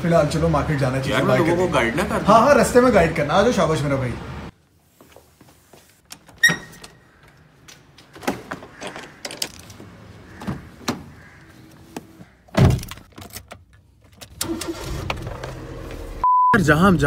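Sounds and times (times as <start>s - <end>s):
handling clicks and knocks: 6.0s - 11.1s, 11.9s - 14.4s.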